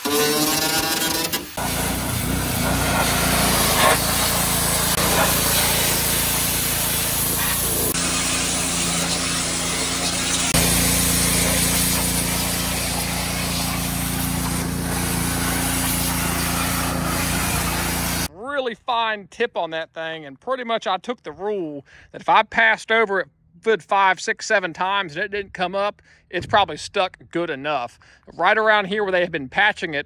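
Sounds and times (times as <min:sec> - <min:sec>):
pressure washer jet hissing: 0:00.0 - 0:18.3
machine humming: 0:01.6 - 0:15.6.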